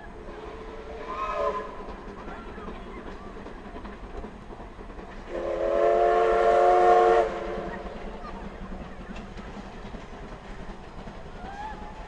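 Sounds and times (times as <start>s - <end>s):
rail clicks: 0.0s - 12.0s
steam locomotive rumbling: 0.0s - 12.0s
steam whistle chord: 5.3s - 7.6s.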